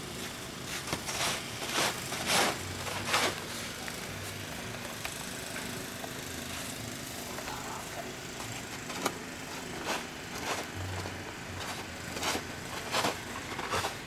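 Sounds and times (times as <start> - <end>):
steady low hum: 0.0 - 14.0
snow shovel scraping: 0.2 - 4.5, 8.9 - 14.0.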